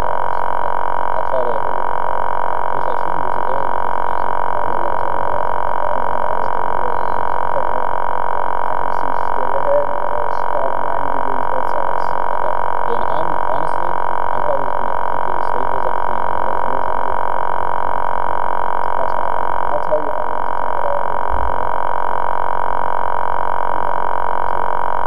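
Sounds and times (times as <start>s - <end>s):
drone motors high whine: 0.0s - 25.0s.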